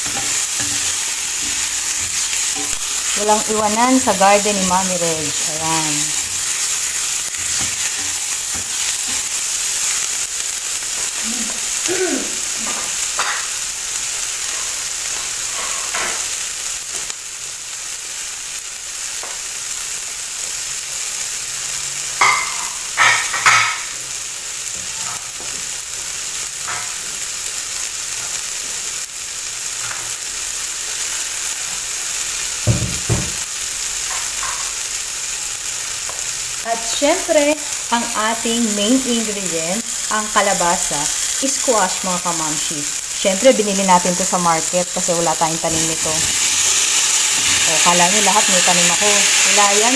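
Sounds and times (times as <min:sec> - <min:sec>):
vegetables sizzling in frying pan: 0:00.0 - 0:49.9.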